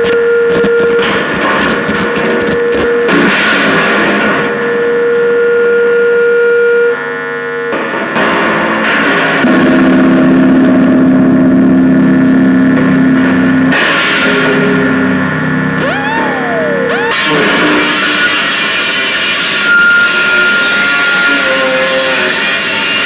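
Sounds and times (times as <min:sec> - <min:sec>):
buzzing drones: 0:09.4 - 0:23.0.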